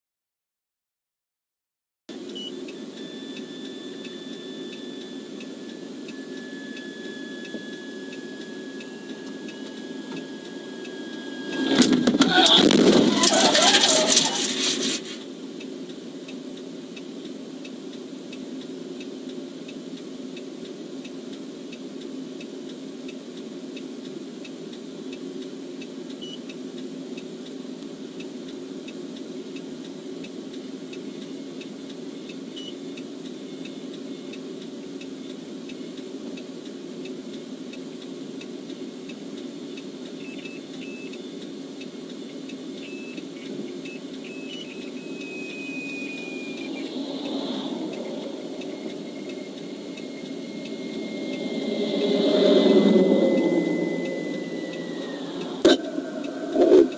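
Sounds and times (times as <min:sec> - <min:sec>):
short high beeps: 0:43.9 - 0:56.9.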